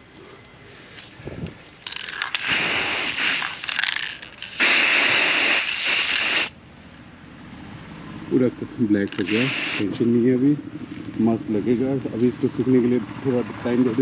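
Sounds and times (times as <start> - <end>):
spray paint can hissing: 1.8 - 6.6, 9.1 - 9.9.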